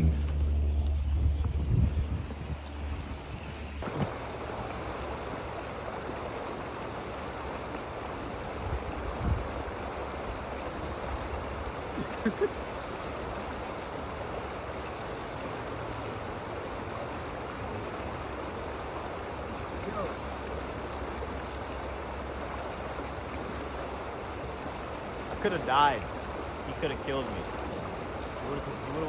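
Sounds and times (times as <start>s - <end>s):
low bumps: 0.0s - 4.6s
water rushing over waterfall: 3.7s - 29.0s.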